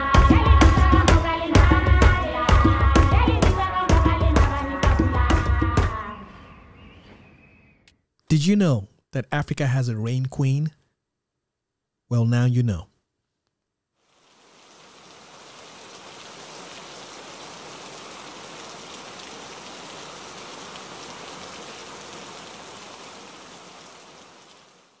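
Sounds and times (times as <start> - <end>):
rain splashing on wet surface: 14.0 - 25.0.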